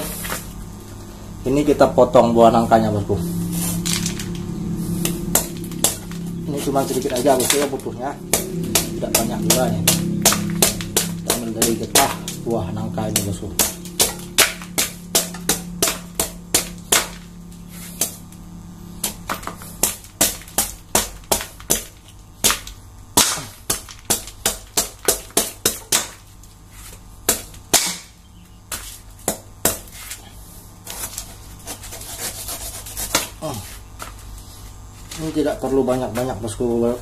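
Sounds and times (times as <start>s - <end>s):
knife chopping fruit: 3.7s - 18.3s, 19.0s - 26.2s, 26.8s - 30.2s, 30.9s - 34.2s.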